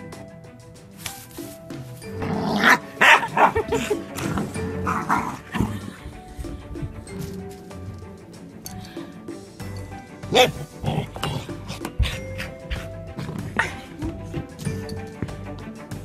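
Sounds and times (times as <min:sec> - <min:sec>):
background music: 0:00.0 - 0:16.0
puppy barking: 0:02.6 - 0:03.9, 0:10.3 - 0:13.9.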